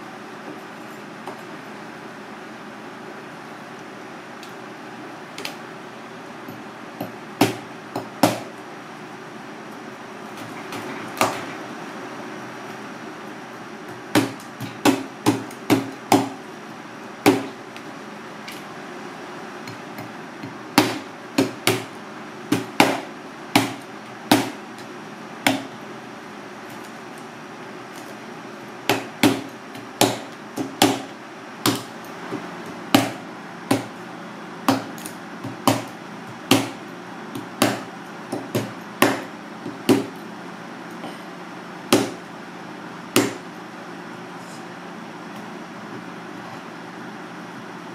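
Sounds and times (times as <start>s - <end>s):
knife chopping on plastic board: 7.0s - 8.5s, 14.1s - 16.4s, 19.6s - 21.9s, 22.5s - 24.6s, 25.5s - 25.7s, 28.9s - 33.9s, 34.7s - 40.2s, 41.9s - 42.2s, 43.2s - 43.4s.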